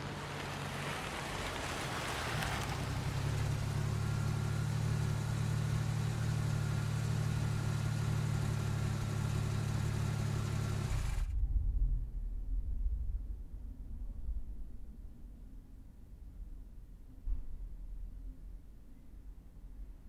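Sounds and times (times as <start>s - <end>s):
car engine idling: 0.0s - 12.3s
deep rumble: 10.8s - 20.0s.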